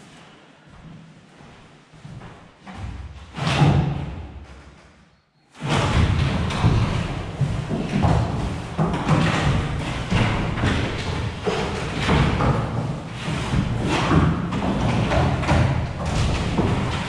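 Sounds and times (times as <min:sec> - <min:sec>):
thuds on wooden floorboards: 0:05.6 - 0:17.0.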